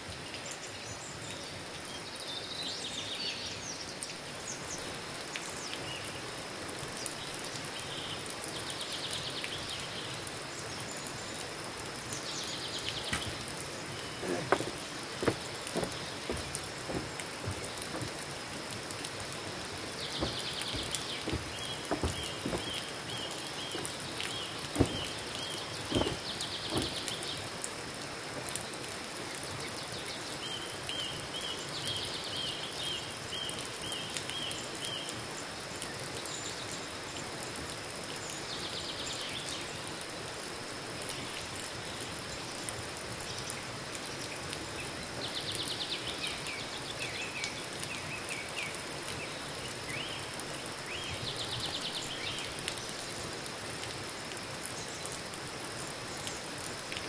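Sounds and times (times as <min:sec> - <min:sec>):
thumps: 0:14.2 - 0:18.3, 0:20.0 - 0:27.3
bird singing: 0:19.6 - 0:27.5.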